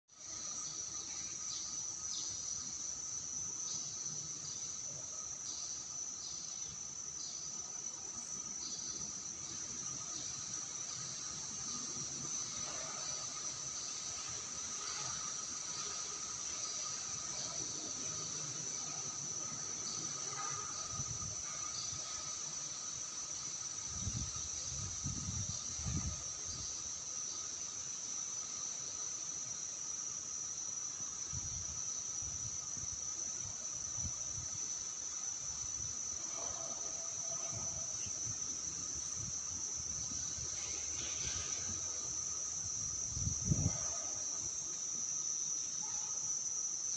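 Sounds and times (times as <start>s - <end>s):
insects chirring: 0.1s - 46.9s.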